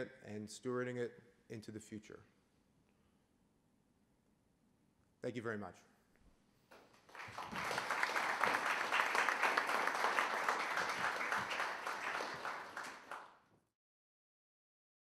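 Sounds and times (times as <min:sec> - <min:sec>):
audience applauding: 0:06.8 - 0:13.4.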